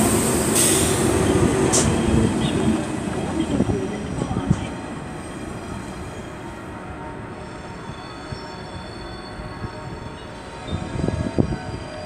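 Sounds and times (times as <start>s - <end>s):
train wheels rumbling on rails: 0.0s - 6.4s.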